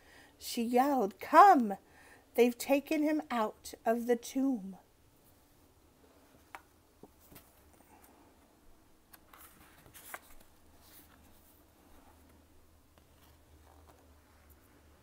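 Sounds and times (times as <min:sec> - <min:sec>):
book page turning: 0:09.1 - 0:14.6.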